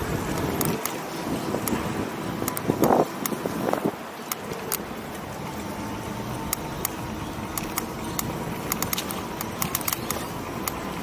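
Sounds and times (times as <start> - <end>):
faint motor whine: 0.0 - 11.0
sharp rattling clicks: 6.5 - 10.8.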